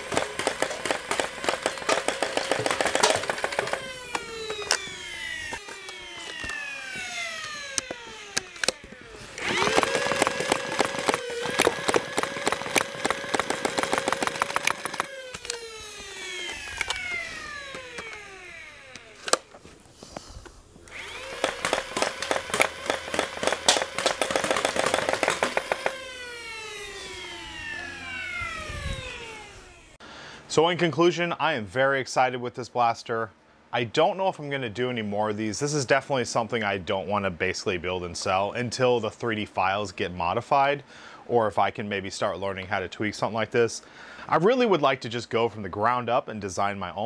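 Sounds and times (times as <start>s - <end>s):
solenoid clattering rapidly: 0.0s - 6.6s, 9.4s - 15.5s, 21.0s - 26.0s
flywheel motors whining: 0.0s - 19.7s, 20.8s - 30.0s.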